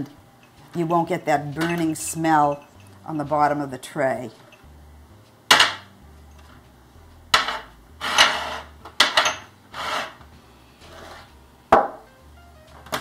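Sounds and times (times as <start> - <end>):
ceramic ramekins clinking: 7.4 - 9.5
dishware scraping: 7.4 - 10.2.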